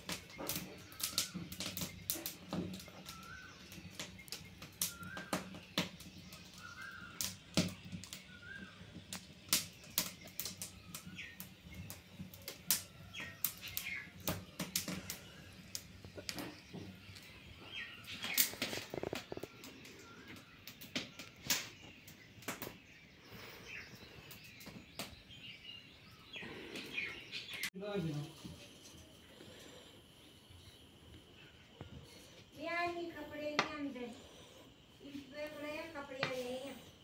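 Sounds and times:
twig fire crackling: 0.0 - 37.0.

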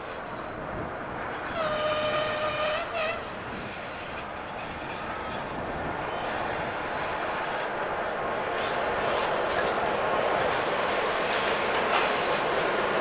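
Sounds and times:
train running on rails: 0.0 - 13.0
locomotive horn blasts: 1.5 - 3.3.

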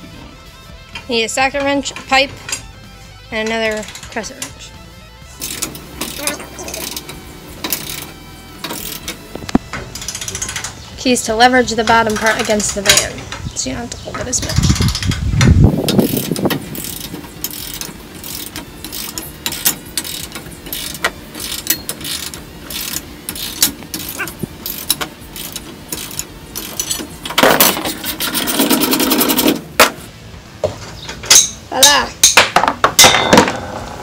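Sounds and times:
socket wrench ratcheting: 5.4 - 10.8, 14.6 - 29.5
harsh rasping: 15.8 - 29.6.

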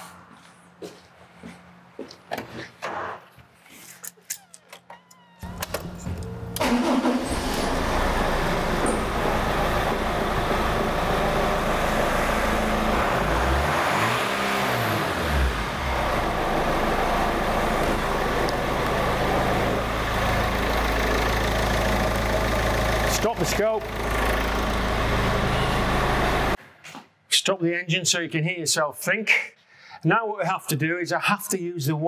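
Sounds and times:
diesel car engine idling: 6.0 - 13.6, 15.2 - 26.6
engine revving: 6.6 - 26.6.

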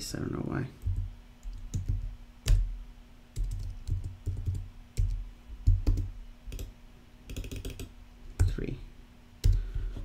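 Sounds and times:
faint steady hum: 0.0 - 10.0
computer keyboard typing: 0.8 - 2.6, 3.4 - 6.7, 7.3 - 8.5.

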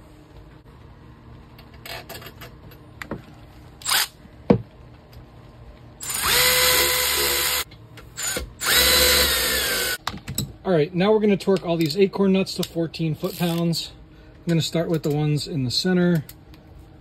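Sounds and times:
cordless power tool whining: 6.0 - 7.6, 8.2 - 10.0.

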